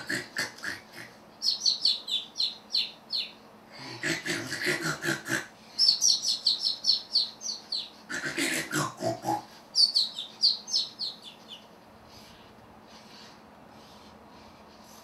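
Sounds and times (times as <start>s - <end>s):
recorded parrot voice snoring: 8.1s - 9.6s.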